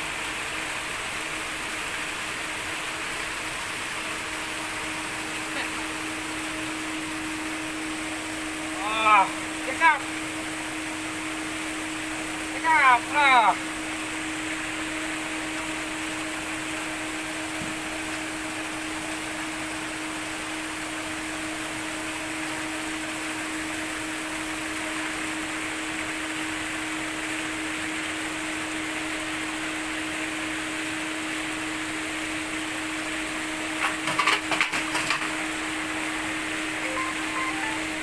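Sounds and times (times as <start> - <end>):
electric hum: 0.0 - 20.8, 35.8 - 38.0.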